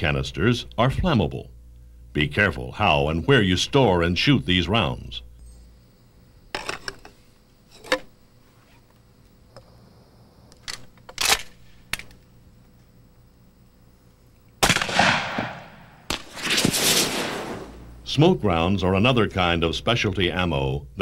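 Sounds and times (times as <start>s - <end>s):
shotgun slide racking clicks: 10.6s - 12.2s
loud shotgun shots: 14.6s - 17.8s.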